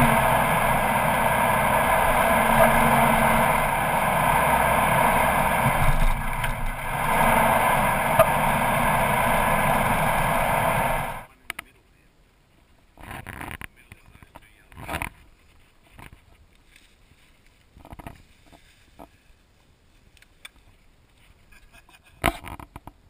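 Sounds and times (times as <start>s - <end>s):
vehicle driving on sand: 0.0s - 11.3s.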